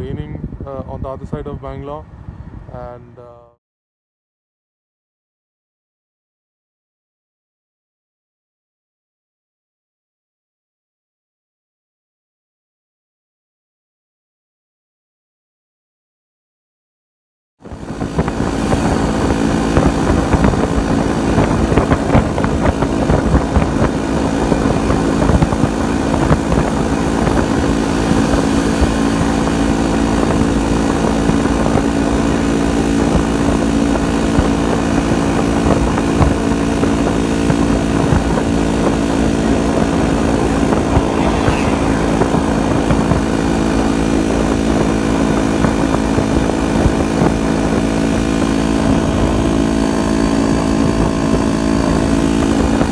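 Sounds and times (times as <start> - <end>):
wind buffeting microphone: 0.0 - 3.3, 17.6 - 52.9
motorcycle engine cruising: 18.0 - 52.8.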